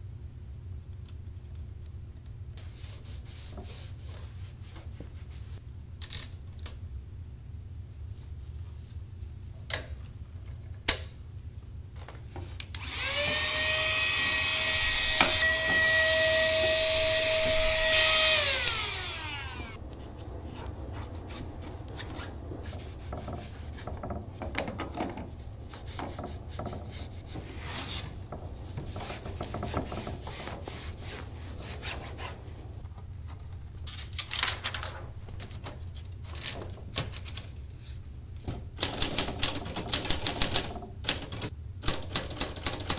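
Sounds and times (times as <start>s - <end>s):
small electric motor whine: 12.8s - 19.8s
cloth rubbing: 19.7s - 24.4s, 25.2s - 32.8s.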